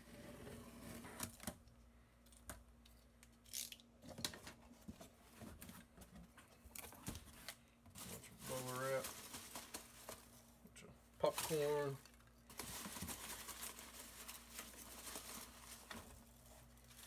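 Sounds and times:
hands stirring packing peanuts: 0:07.4 - 0:10.5, 0:11.2 - 0:17.0.

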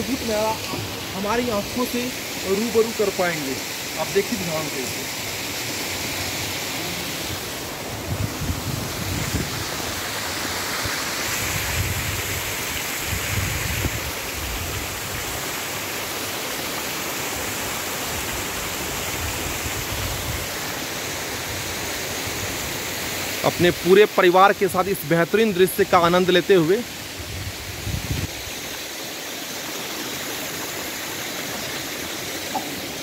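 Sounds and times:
waterfall rushing: 0:00.0 - 0:33.0.

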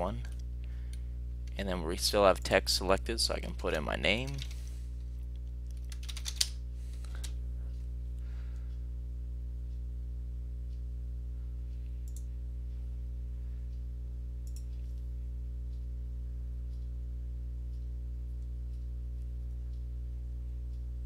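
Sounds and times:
low electrical hum: 0:00.0 - 0:21.0
keyboard keystrokes: 0:05.7 - 0:06.5.

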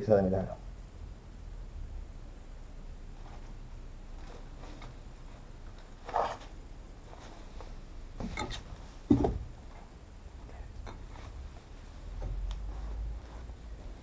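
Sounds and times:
thump: 0:09.1 - 0:09.5.

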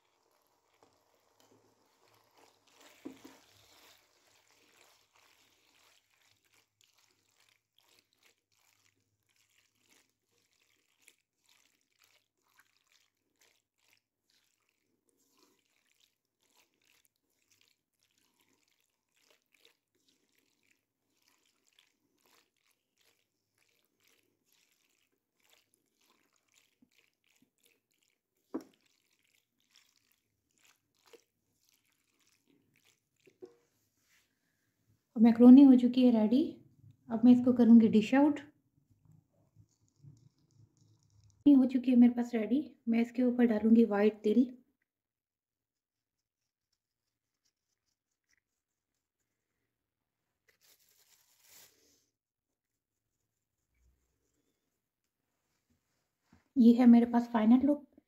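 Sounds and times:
spatula stirring food in wok: 0:00.0 - 0:34.2, 0:39.1 - 0:41.5.

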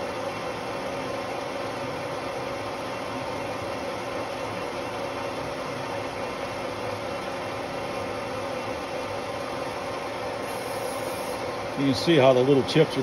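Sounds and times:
metal lathe humming: 0:00.0 - 0:13.0.

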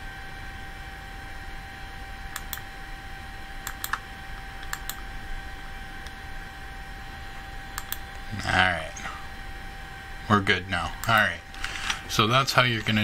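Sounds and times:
computer mouse clicking: 0:02.3 - 0:02.6, 0:03.6 - 0:04.0, 0:04.6 - 0:05.0, 0:07.8 - 0:08.1, 0:11.0 - 0:11.3.

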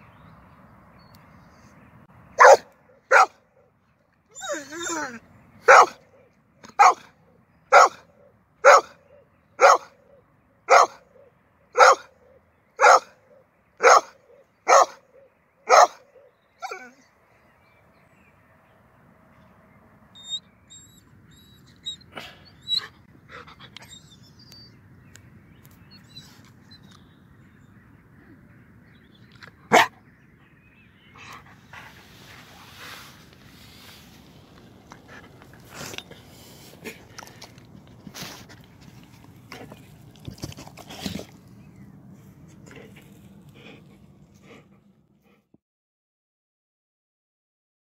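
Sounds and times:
dog barking: 0:02.4 - 0:03.4, 0:05.7 - 0:06.0, 0:06.7 - 0:07.1, 0:07.7 - 0:10.0, 0:10.7 - 0:13.2, 0:13.8 - 0:16.8, 0:29.7 - 0:29.9
dog sniffing and scuffling: 0:31.6 - 0:41.6.

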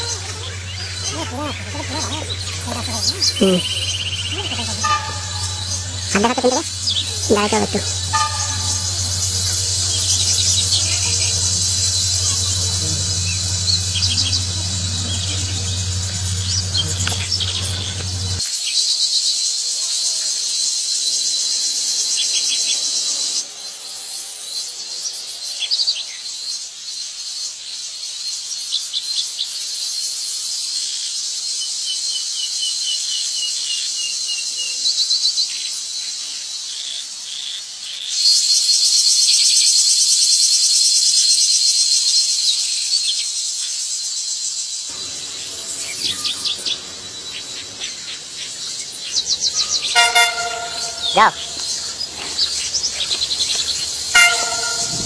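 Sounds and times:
shrill insect chorus: 0:00.0 - 0:18.5, 0:35.5 - 0:55.0
open-air background noise: 0:00.0 - 0:55.0
short high chirps: 0:49.7 - 0:51.8.

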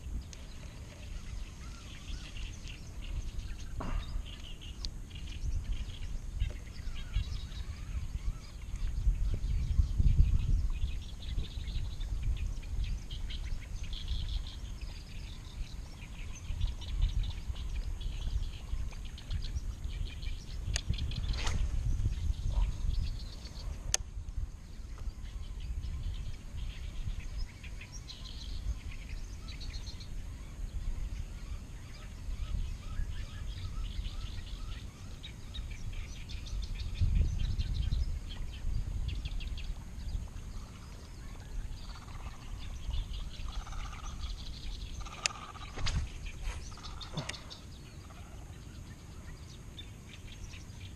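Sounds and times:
small birds chirping: 0:00.0 - 0:50.9.

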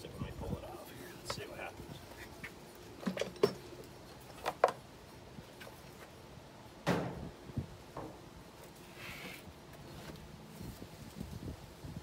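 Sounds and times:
metal parts knocking and clunking: 0:03.0 - 0:03.7.

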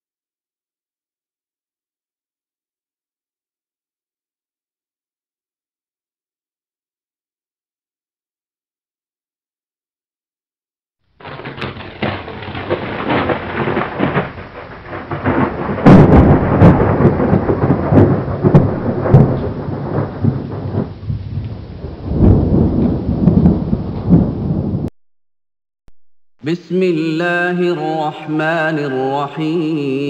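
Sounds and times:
rain: 0:11.2 - 0:24.9
rumbling crackling thunder: 0:11.2 - 0:24.9
sharp thunderclap: 0:11.2 - 0:24.9.

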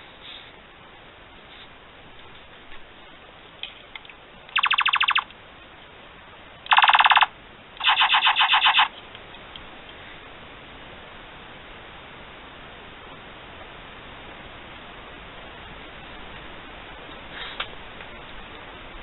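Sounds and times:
toy blaster electronic tones: 0:04.6 - 0:05.2, 0:06.7 - 0:08.9.

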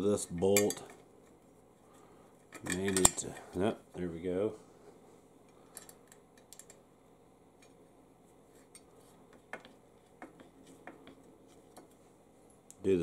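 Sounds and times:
small metal clicks: 0:05.5 - 0:06.8.

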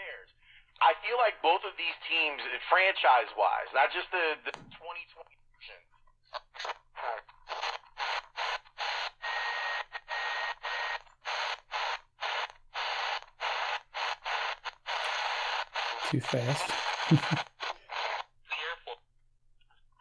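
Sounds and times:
radio static bursts: 0:06.3 - 0:19.0.

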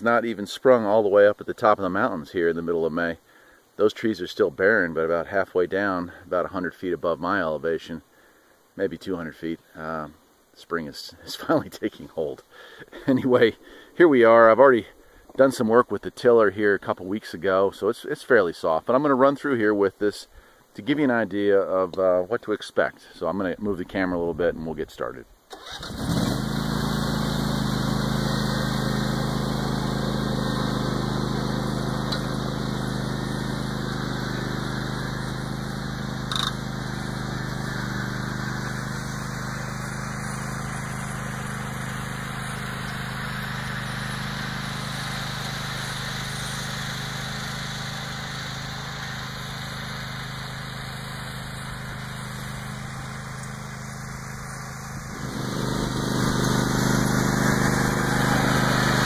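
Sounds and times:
garden tractor engine running: 0:25.5 - 0:59.0.

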